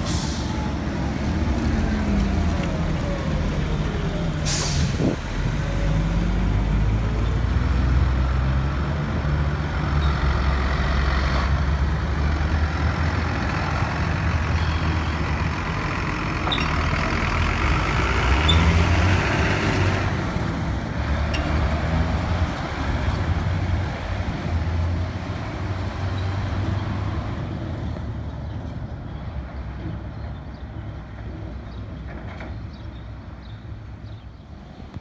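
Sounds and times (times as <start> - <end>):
tractor diesel engine: 0.0 - 26.0
tyre road noise: 0.0 - 35.0.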